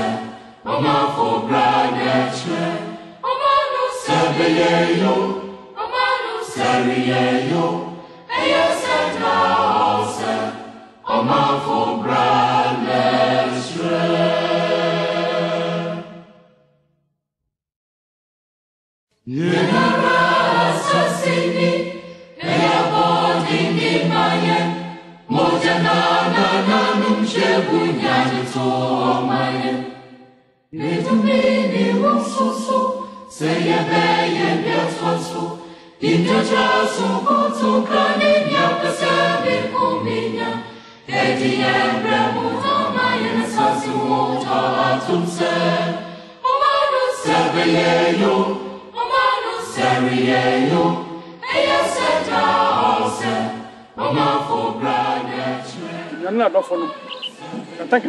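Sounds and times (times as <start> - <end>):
choir singing: 0.0 - 16.7, 19.3 - 58.0.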